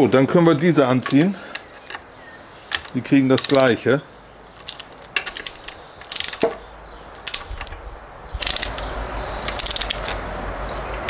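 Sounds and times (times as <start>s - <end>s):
ratchet wrench clicking: 2.7s - 3.8s, 4.6s - 6.6s, 7.2s - 7.8s, 8.4s - 10.2s.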